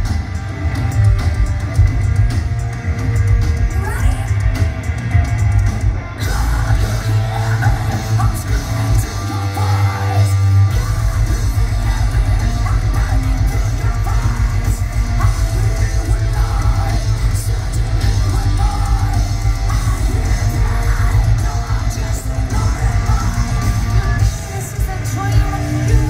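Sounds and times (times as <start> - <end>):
fast low drumbeats: 0.0 - 26.0
heavy metal band playing live: 0.0 - 26.0
yelled sung vocals: 0.0 - 26.0.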